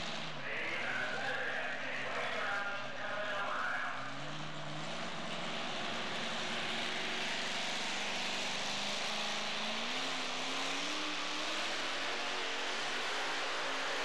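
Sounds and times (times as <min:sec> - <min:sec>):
truck engine revving: 0:00.0 - 0:14.0.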